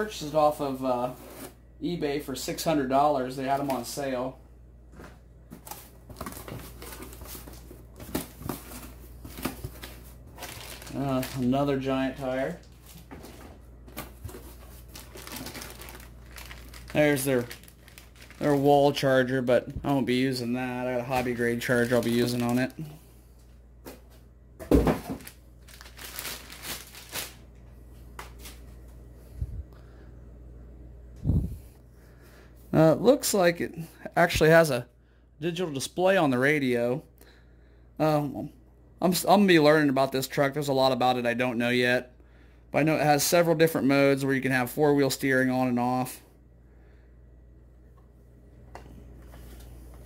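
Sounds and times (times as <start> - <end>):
steady low hum: 0.0 - 39.1, 45.6 - 50.0
packaging rustling and crinkling: 5.5 - 23.0, 24.7 - 27.4.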